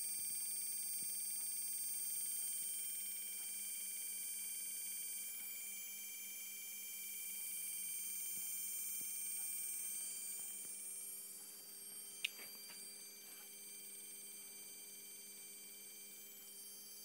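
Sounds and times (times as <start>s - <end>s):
high-pitched electronic whine: 0.0s - 17.0s.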